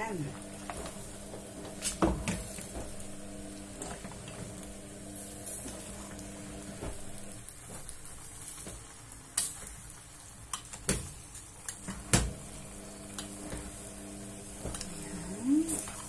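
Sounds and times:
soft sizzle: 0.0s - 16.0s.

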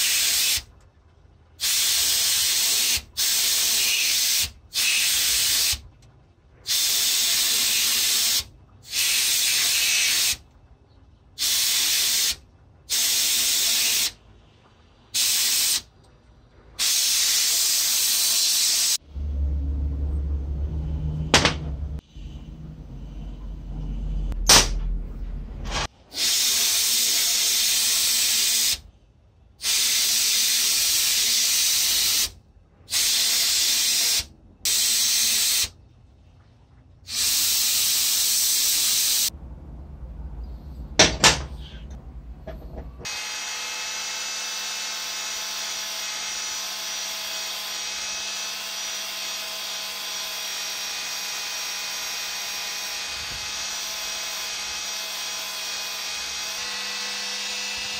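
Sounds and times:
paint sprayer hissing: 0.0s - 0.6s, 1.6s - 5.8s, 6.7s - 10.4s, 11.4s - 14.2s, 15.2s - 15.8s, 16.8s - 19.0s, 29.6s - 32.3s, 32.9s - 35.7s, 37.1s - 39.3s
grinding wheel grinding steel: 19.0s - 25.9s, 41.5s - 57.9s.

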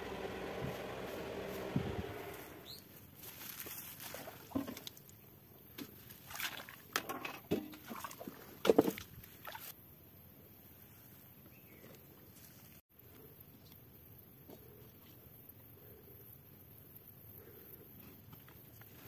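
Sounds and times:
water sloshing around boat: 5.8s - 9.7s.

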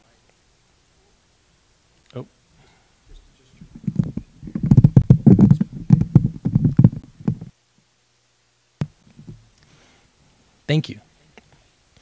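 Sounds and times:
microphone handling thumps: 3.1s - 7.6s, 8.8s - 9.5s.

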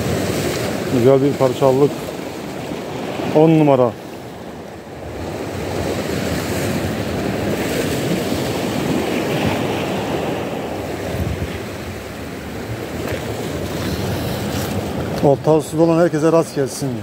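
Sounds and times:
rough sea waves on shore: 0.0s - 17.0s
wind on microphone: 5.0s - 15.3s.

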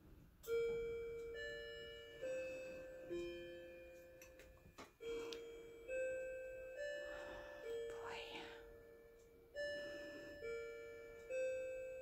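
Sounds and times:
chiming clock tune: 0.0s - 12.0s.

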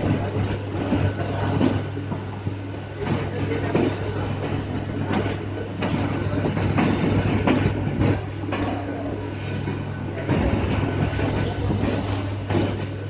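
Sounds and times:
train coach hum and rumble: 0.0s - 13.0s.

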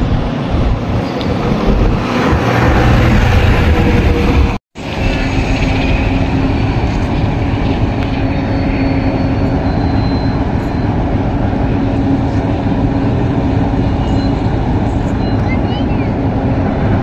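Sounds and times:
diesel locomotive engine droning: 0.0s - 17.0s.

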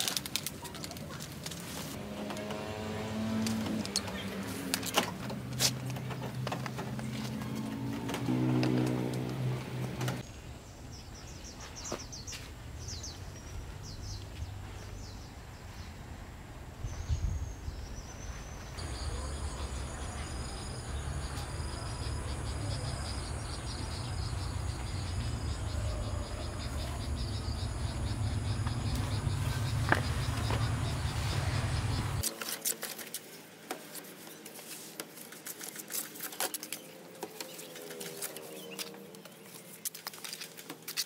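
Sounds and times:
insects chirping: 18.8s - 33.0s.

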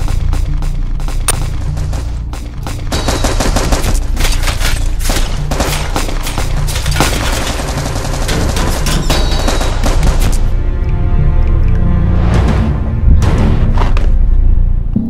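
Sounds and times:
rapid gunfire: 0.0s - 10.5s
low music score: 9.6s - 15.0s.

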